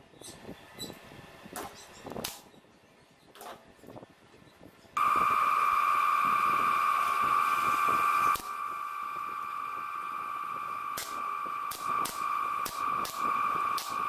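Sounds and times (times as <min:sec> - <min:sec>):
electric nailer firing into wood: 0:05.0 - 0:14.0
high-pitched whine: 0:05.0 - 0:14.0.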